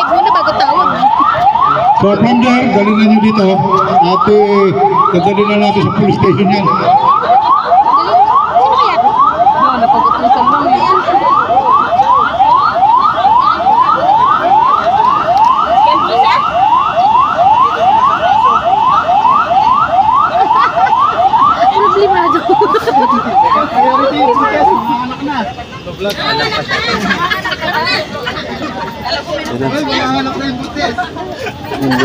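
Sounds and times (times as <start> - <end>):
electronic siren yelping: 0.0 - 25.5.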